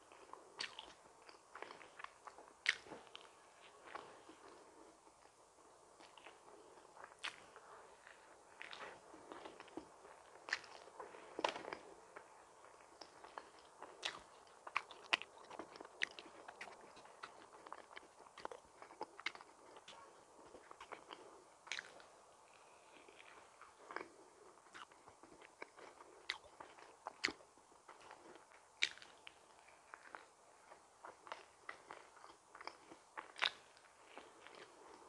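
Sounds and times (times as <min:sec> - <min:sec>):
chewing and biting donuts: 0:00.0 - 0:35.0
mouth clicks and smacks: 0:00.2 - 0:03.3, 0:07.0 - 0:11.8, 0:13.0 - 0:22.1, 0:28.8 - 0:30.3, 0:31.2 - 0:35.0.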